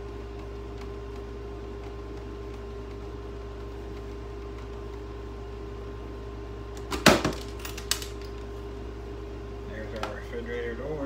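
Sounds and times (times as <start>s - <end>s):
steady hum: 0.0s - 11.0s
clatter of knocks on parts: 6.9s - 8.4s.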